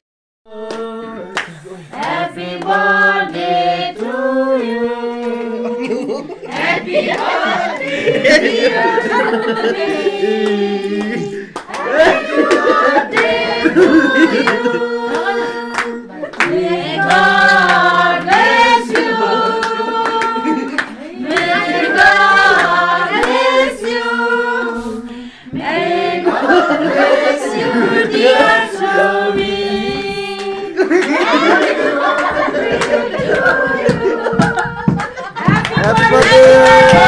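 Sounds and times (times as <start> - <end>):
group singing a birthday song: 0.5 - 37.0
hands clapping: 0.7 - 5.4, 6.5 - 8.1, 10.4 - 13.4, 14.4 - 24.0, 28.2 - 37.0.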